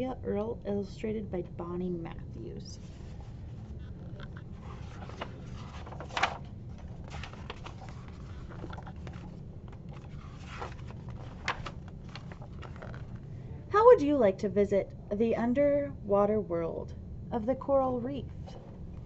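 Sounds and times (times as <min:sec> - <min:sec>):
low room hum: 0:00.0 - 0:19.0
book pages turning: 0:02.8 - 0:13.3.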